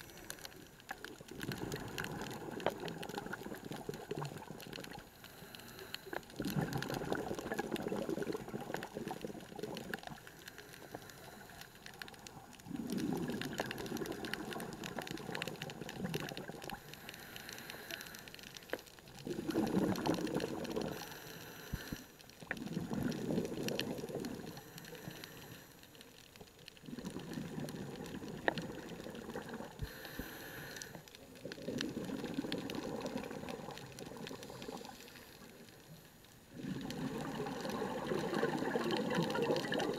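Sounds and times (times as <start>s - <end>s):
bubbling regulator exhalations: 1.2s - 5.0s, 6.1s - 10.2s, 12.6s - 16.8s, 19.1s - 21.1s, 22.5s - 24.7s, 26.8s - 30.3s, 31.4s - 35.0s, 36.5s - 39.9s
faint regulator inhale hiss: 5.0s - 6.4s, 10.2s - 11.9s, 16.7s - 18.9s, 20.8s - 22.3s, 24.5s - 26.1s, 29.8s - 31.3s, 34.3s - 36.1s.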